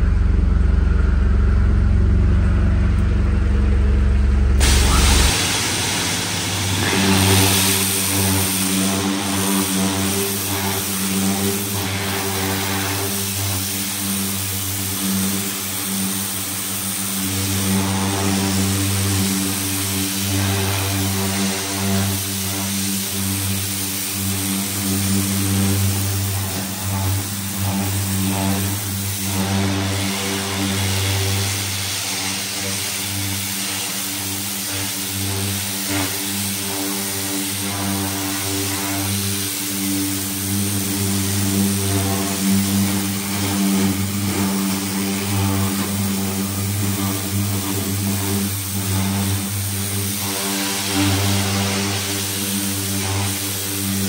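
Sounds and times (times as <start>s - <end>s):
pressure washer motor drone: 0.0s - 54.0s
water jet hissing on metal: 4.6s - 54.0s.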